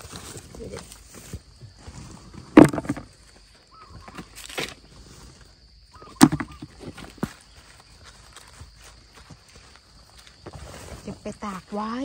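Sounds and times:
fruits knocking into plastic bucket: 2.5 - 3.2, 6.2 - 7.3.

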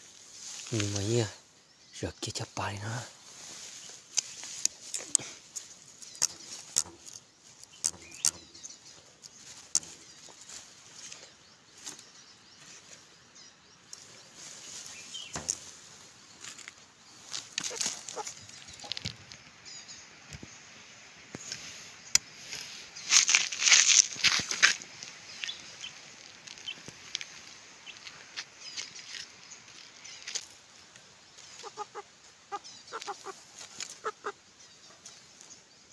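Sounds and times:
rustling and knocking against bamboo: 2.6 - 13.1, 13.9 - 19.6, 21.3 - 35.7
animal scuffling: 14.4 - 19.4.

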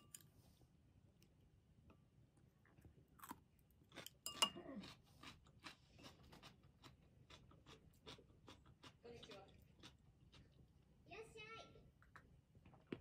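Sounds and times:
chopsticks clinking on ceramic bowl: 0.0 - 0.3, 4.0 - 5.0
crunching chewing: 2.6 - 10.6.

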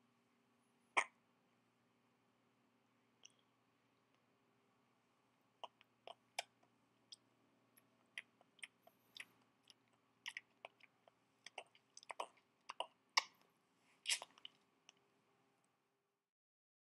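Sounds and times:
baby mouth clicks and smacks: 8.1 - 10.9, 11.5 - 13.4, 14.1 - 15.0.

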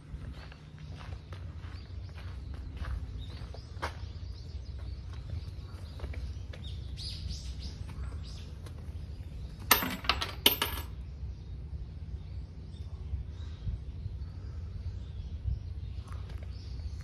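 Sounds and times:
coins clinking into a box: 9.7 - 10.9.

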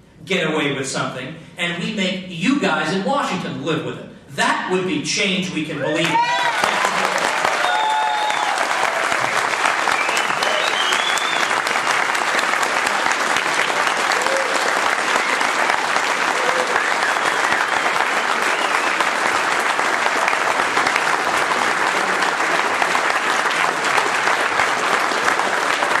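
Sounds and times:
audience applauding: 6.0 - 26.0.

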